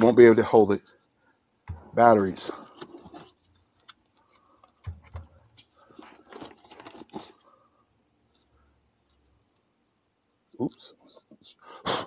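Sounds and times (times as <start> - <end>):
soft thumps: 1.7 - 2.0
backpack rustling: 2.6 - 3.4, 5.0 - 7.5.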